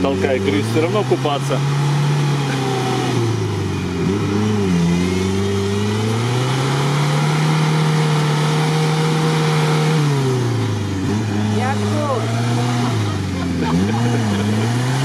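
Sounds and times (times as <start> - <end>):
engine revving hard: 0.0 - 15.0.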